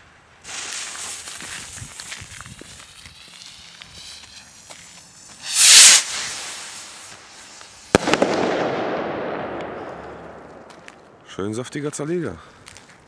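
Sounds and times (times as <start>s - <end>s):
firework rocket hissing whoosh: 0.4s - 10.6s
firework bang: 5.4s - 7.1s, 7.9s - 11.2s.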